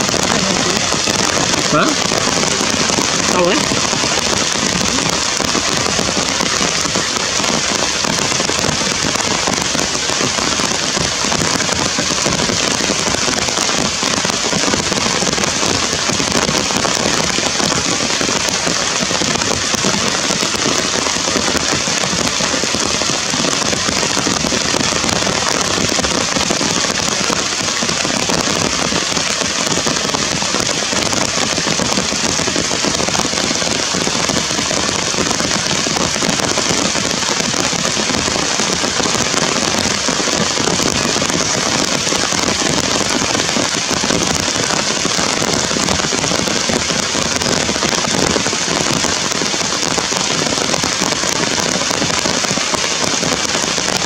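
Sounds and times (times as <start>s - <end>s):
heavy rain on leaves: 0.0s - 54.0s.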